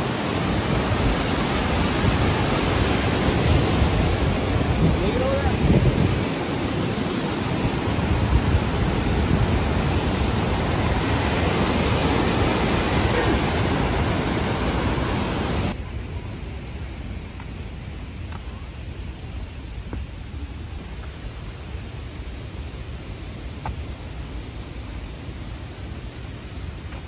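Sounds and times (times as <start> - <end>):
whitewater rushing: 0.0 - 15.8.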